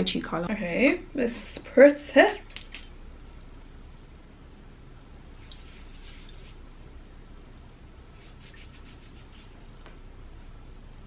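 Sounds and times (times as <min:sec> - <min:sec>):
skin rubbing on skin: 0:05.4 - 0:06.6, 0:08.2 - 0:09.6.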